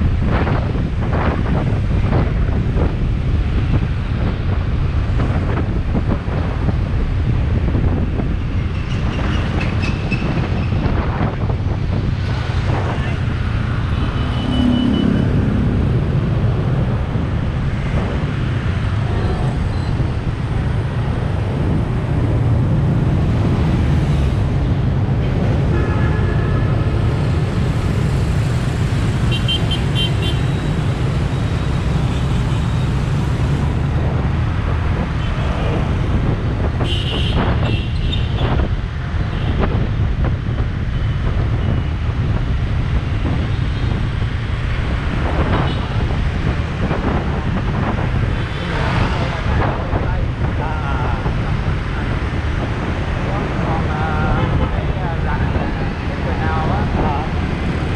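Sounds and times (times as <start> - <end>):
road noise: 0.0 - 57.9
scooter engines rumbling: 8.2 - 25.8, 43.1 - 57.9.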